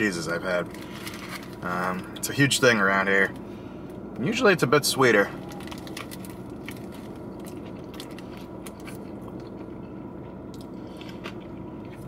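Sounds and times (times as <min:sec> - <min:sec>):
steady low hum: 0:00.0 - 0:12.0
person chewing food: 0:05.4 - 0:12.0.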